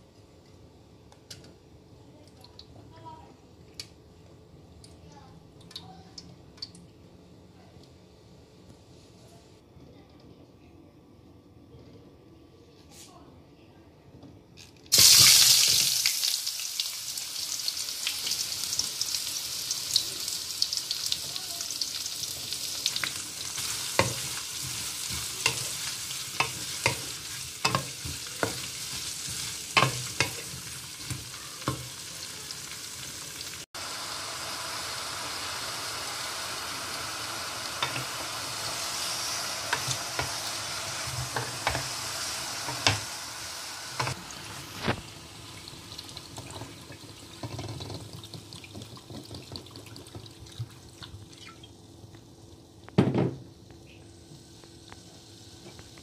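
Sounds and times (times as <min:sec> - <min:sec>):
oil sizzling in a wok: 0:14.9 - 0:52.8, 0:53.7 - 0:56.0.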